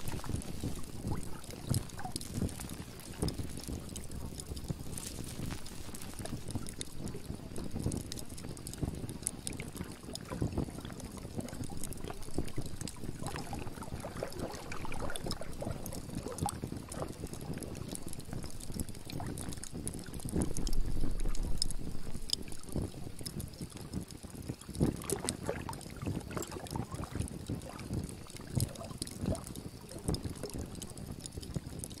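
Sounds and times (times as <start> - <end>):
water lapping and splashing: 0.0 - 32.0.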